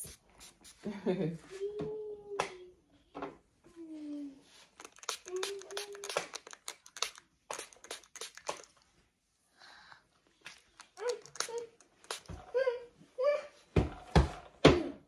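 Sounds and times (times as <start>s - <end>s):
spray bottle spritzing: 0.0s - 0.8s, 4.8s - 8.8s, 10.4s - 12.4s.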